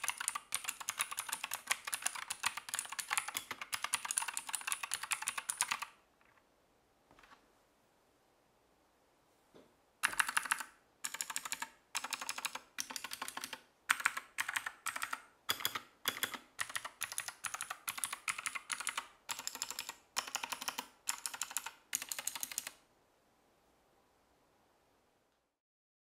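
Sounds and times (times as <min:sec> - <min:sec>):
clicky keyboard typing: 0:00.0 - 0:06.4, 0:10.0 - 0:22.8.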